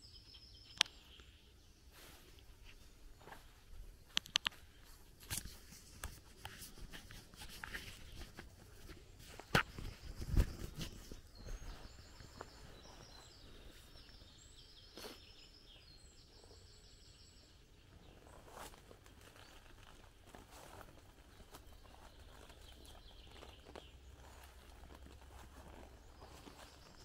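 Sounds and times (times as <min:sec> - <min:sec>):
songbird singing: 0:00.0 - 0:27.0
footsteps crunching through leaves: 0:18.3 - 0:27.0.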